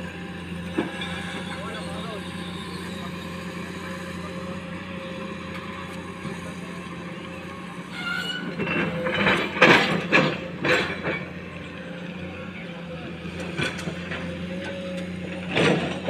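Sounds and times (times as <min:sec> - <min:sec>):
diesel engines running: 0:00.0 - 0:16.0
excavator bucket scraping and crunching: 0:07.5 - 0:11.8, 0:13.4 - 0:16.0.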